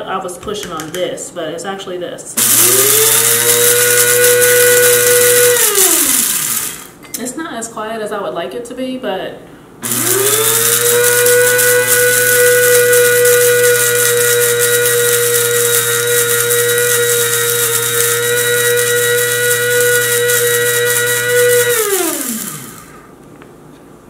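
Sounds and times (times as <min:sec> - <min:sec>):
electric coffee grinder whining: 0:02.4 - 0:07.0, 0:09.8 - 0:23.1.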